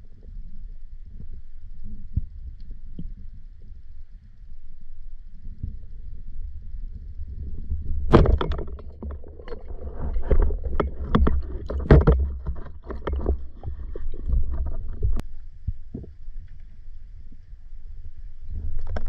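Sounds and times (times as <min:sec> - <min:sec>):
underwater rumble of moving water: 0:00.0 - 0:19.0
clicks and knocks underwater: 0:07.3 - 0:16.8, 0:18.5 - 0:19.0.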